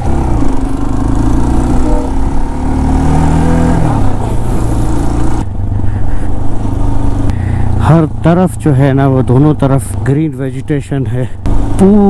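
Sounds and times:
vehicle engine running: 0.0s - 12.0s.

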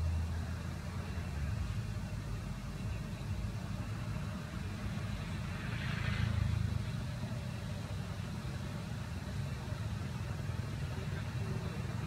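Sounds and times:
engine running low rumble: 0.0s - 12.0s.

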